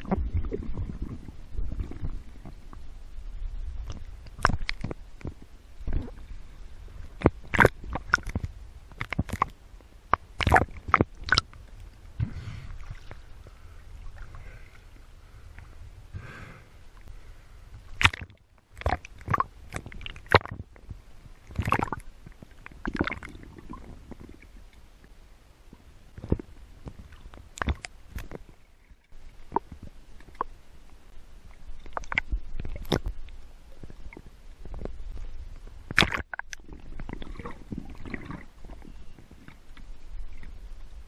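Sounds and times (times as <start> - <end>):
water sloshing and bubbling: 0.0 - 41.0
water splashes: 3.8 - 15.9, 17.8 - 24.6, 31.5 - 35.1, 35.8 - 41.0.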